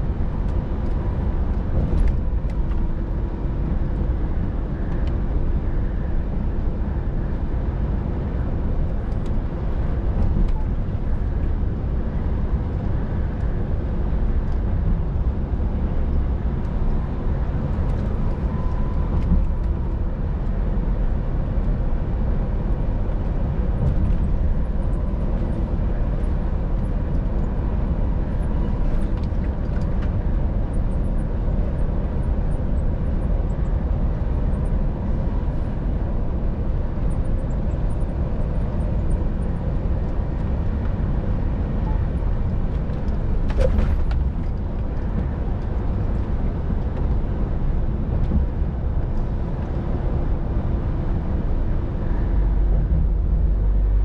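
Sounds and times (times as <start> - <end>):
truck engine drone: 0.0 - 54.0
tyre and road noise: 0.0 - 54.0.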